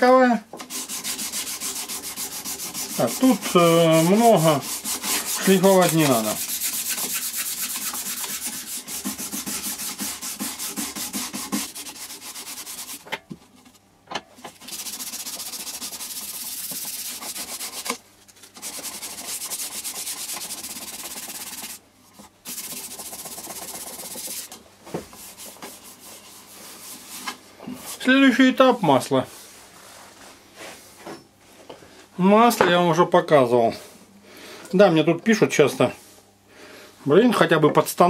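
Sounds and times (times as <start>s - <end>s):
sandpaper rubbing on wood: 0.6s - 13.0s, 14.6s - 21.8s, 22.4s - 24.5s, 25.2s - 27.3s.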